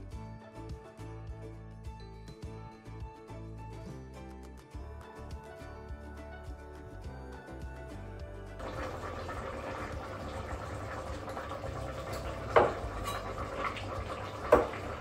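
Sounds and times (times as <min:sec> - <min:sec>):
background music: 0:00.0 - 0:15.0
pressure cooker hissing and bubbling: 0:08.6 - 0:15.0.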